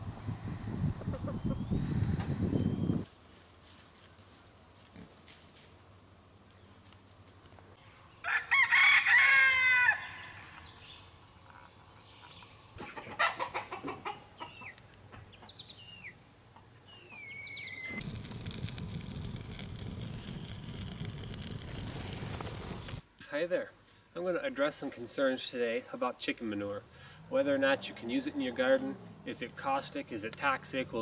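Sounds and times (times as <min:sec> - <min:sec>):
chicks peeping: 0:00.8 - 0:01.8
rooster crowing: 0:08.2 - 0:10.6
campfire crackling: 0:17.1 - 0:23.1.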